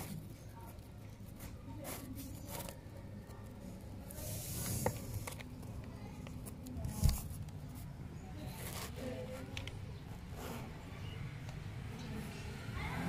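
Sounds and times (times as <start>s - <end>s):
rustling of paper and cardboard: 0.0s - 10.7s.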